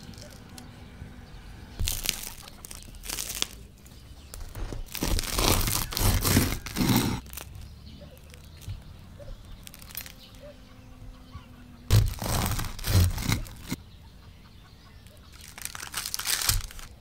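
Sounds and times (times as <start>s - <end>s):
bread knife sawing crusty bread: 4.5s - 7.4s, 11.9s - 13.8s.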